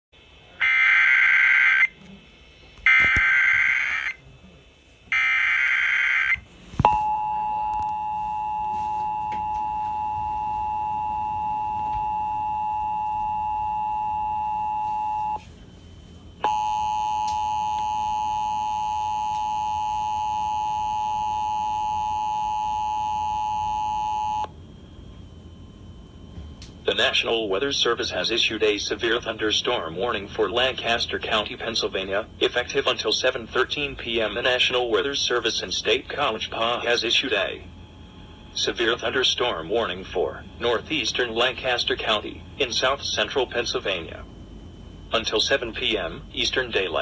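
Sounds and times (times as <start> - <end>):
two-tone attention signal: 6.9 - 15.5.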